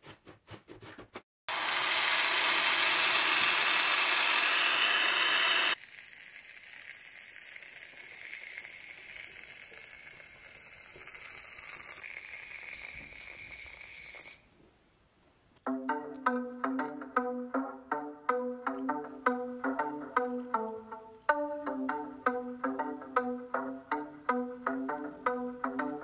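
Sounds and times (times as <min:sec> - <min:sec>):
aerosol can spraying foam: 0:05.7 - 0:14.4.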